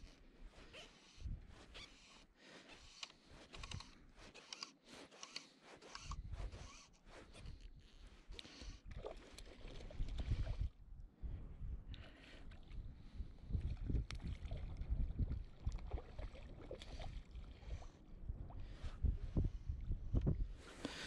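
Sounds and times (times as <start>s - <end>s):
fly line rasping through guides: 0.0s - 8.8s
wind buffeting microphone: 9.8s - 12.0s, 12.7s - 16.2s, 17.7s - 20.7s.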